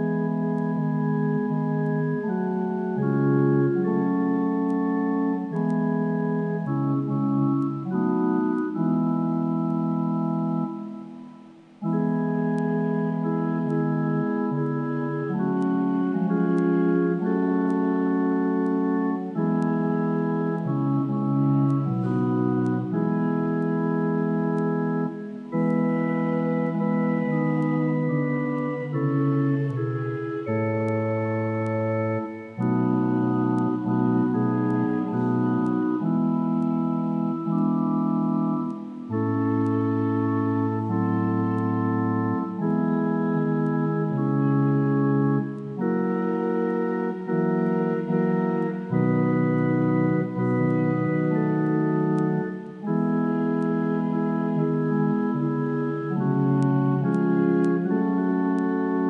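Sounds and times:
church organ playing chords: 0.0s - 59.0s.

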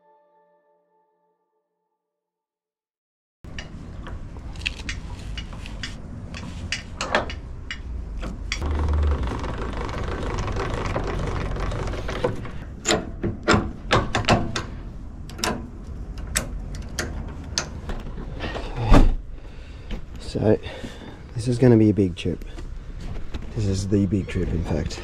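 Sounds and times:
jockey wheel crank winding: 8.6s - 12.6s
metal clanks of trailer coupling: 12.7s - 18.0s.

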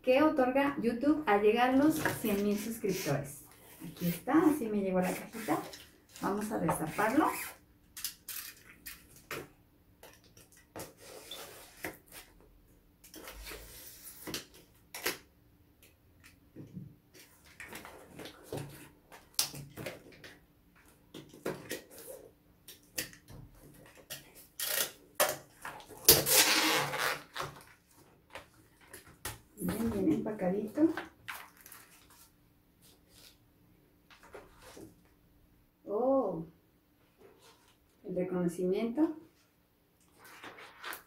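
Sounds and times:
plastic wrapping crinkling: 30.8s - 32.4s.

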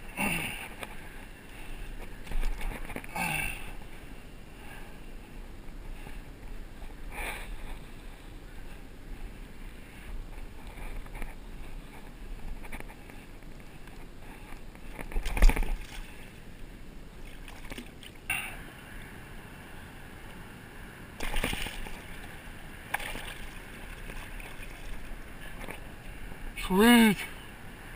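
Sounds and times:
water sloshing and splashing: 14.9s - 16.3s, 17.2s - 18.3s, 21.2s - 25.9s.

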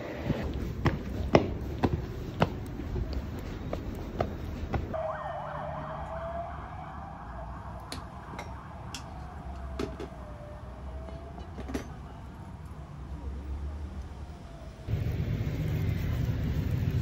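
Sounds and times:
low street rumble: 0.0s - 17.0s
distant siren wailing: 4.9s - 15.4s.

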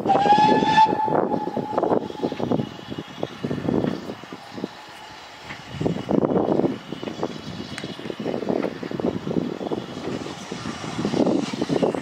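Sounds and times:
steam locomotive exhaust beats: 0.0s - 12.0s.

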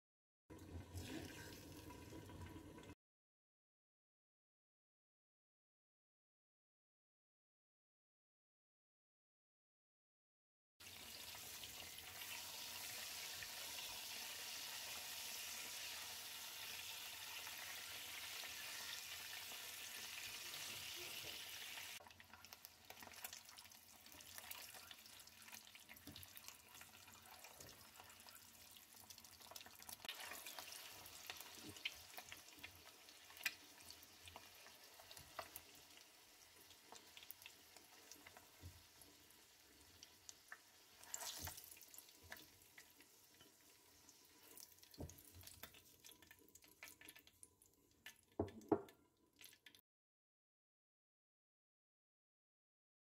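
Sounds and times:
eggs sizzling in oil: 0.6s - 3.0s, 10.8s - 49.8s
spatula scraping a pot: 30.0s - 30.8s
knocks on a pot: 48.4s - 48.9s.

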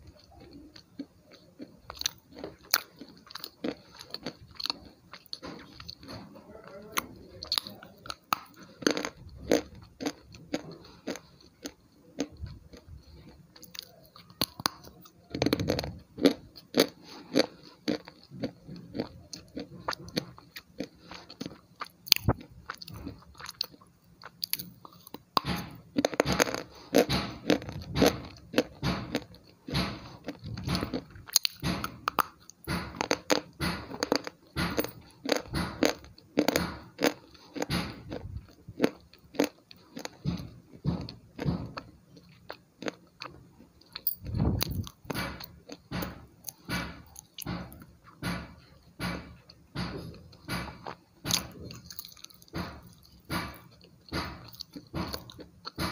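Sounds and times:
person crunching something brittle: 0.1s - 47.7s, 50.7s - 55.9s.

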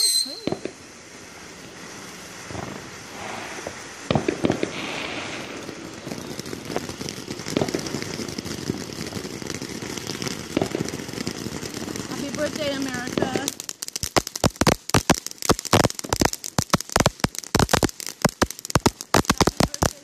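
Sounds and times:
fireworks bangs: 0.0s - 20.0s
fireworks popping and crackling: 0.0s - 20.0s.

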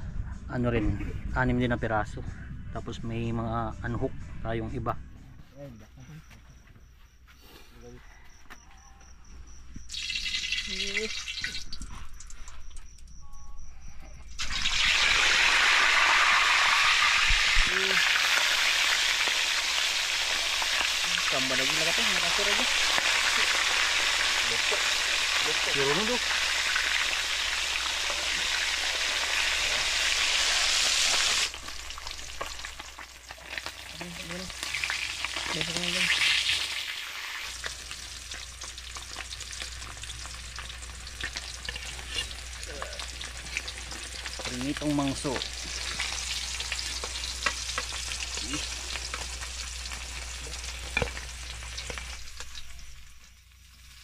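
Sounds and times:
fish sizzling in hot oil: 9.9s - 12.8s, 14.3s - 54.0s.

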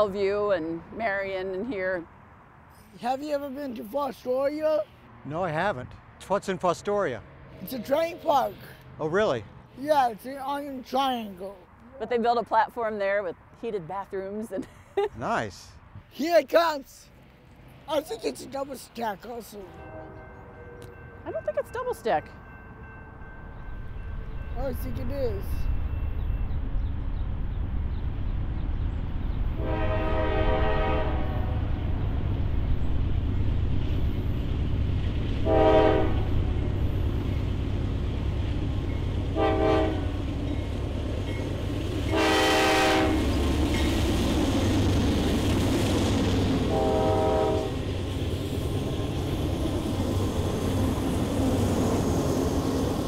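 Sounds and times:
train rumble: 17.2s - 53.0s
locomotive air horn blasts: 19.7s - 20.8s, 29.6s - 31.6s, 35.4s - 36.3s, 39.4s - 40.2s, 42.1s - 43.3s, 46.7s - 47.8s.

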